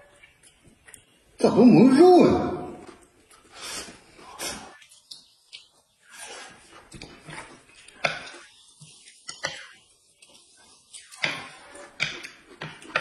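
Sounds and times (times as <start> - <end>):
noodles slurped and chewed: 3.0 - 13.0.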